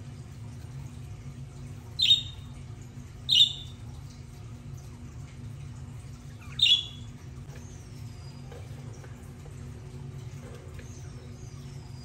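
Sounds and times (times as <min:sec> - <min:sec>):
steady low hum: 0:00.0 - 0:12.0
budgerigar calls: 0:02.0 - 0:02.4, 0:03.3 - 0:03.7, 0:06.5 - 0:07.0.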